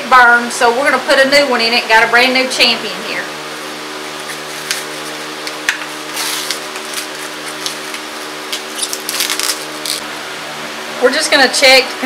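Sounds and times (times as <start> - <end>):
steady low hum: 0.0 - 12.0
paper packaging rustling: 6.1 - 10.0.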